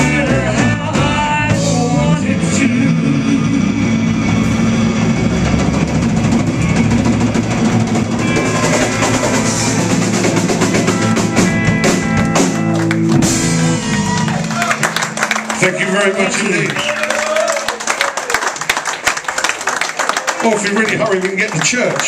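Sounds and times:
rapid drum and cymbal hits: 0:00.0 - 0:14.2
blues band playing: 0:00.0 - 0:22.0.

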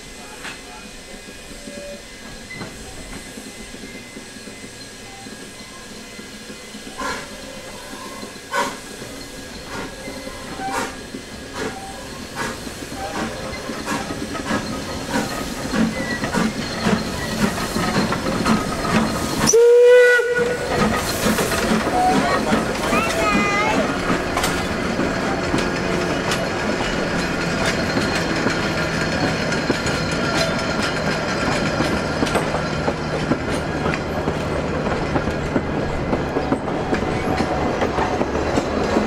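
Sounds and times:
steam hissing: 0:00.0 - 0:39.0
steam locomotive exhaust beats: 0:00.0 - 0:39.0
locomotive clanks: 0:00.3 - 0:39.0
steam whistle blast: 0:19.4 - 0:20.8.

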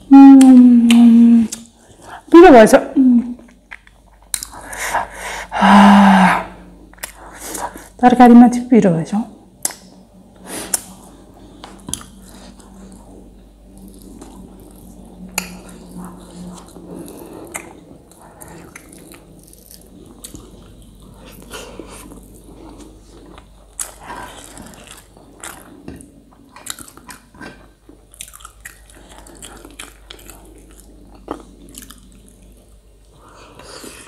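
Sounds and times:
person chewing and mouth sounds: 0:00.1 - 0:02.3, 0:03.3 - 0:05.2, 0:06.9 - 0:08.0, 0:09.6 - 0:34.0.

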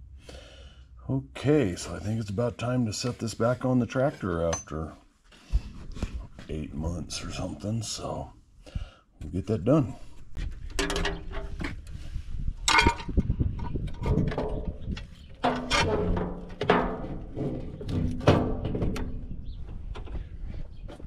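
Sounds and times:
sheet metal panel clanking: 0:14.1 - 0:19.4.

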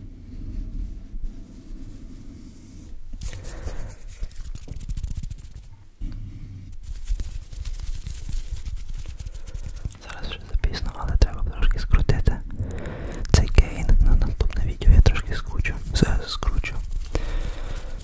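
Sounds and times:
air rumble from hands on microphone: 0:00.0 - 0:18.0
soft clicks of fingers: 0:11.7 - 0:13.5.

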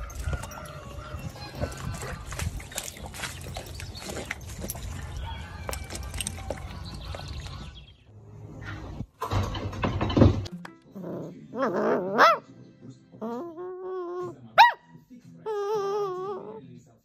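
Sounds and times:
puppy howling and whining: 0:13.2 - 0:14.3, 0:15.5 - 0:16.6.

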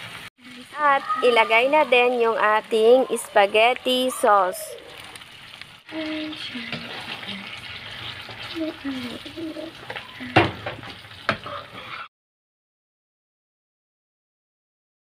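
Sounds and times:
sauce sizzling in frying pan: 0:00.0 - 0:12.1
spatula stirring: 0:04.8 - 0:12.1.

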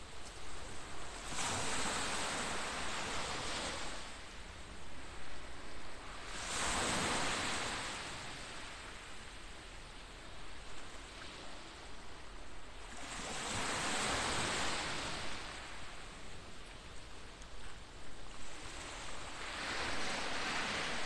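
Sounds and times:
sea waves washing onto shore: 0:00.0 - 0:21.0.

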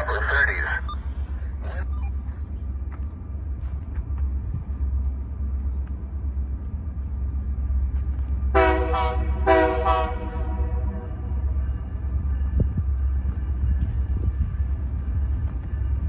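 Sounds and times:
train rumble: 0:00.0 - 0:16.0
locomotive air horn blasts: 0:08.5 - 0:11.1.

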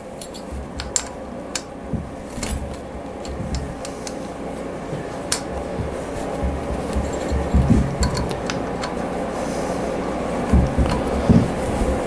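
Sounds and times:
hand tool clicking on bolts: 0:00.2 - 0:01.7, 0:05.3 - 0:09.0.

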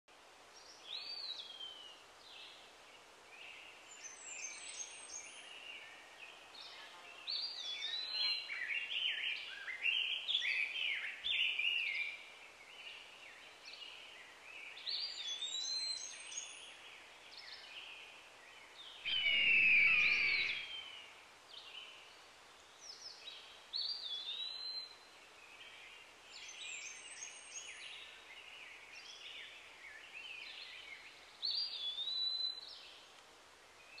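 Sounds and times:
small birds chirping and trilling: 0:00.6 - 0:33.1
harsh bird call: 0:19.1 - 0:20.9.

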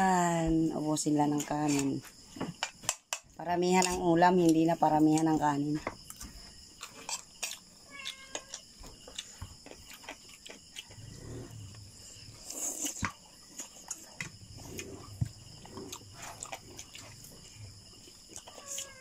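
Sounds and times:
chewing and lip smacking: 0:06.8 - 0:11.7, 0:12.4 - 0:18.9.

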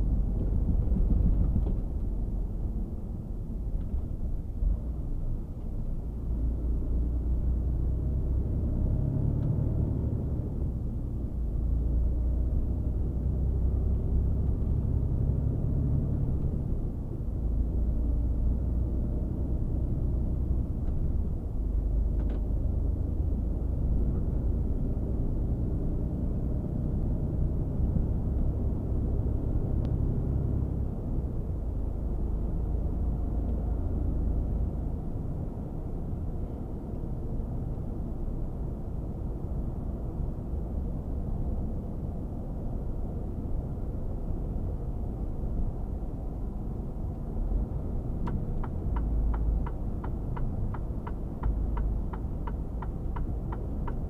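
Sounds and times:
truck engine and road rumble: 0:00.0 - 0:54.0.

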